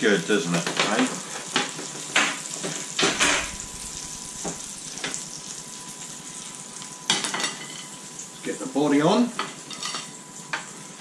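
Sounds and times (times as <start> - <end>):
butter sizzling on grill tray: 0.0 - 11.0
knocks: 3.0 - 3.7.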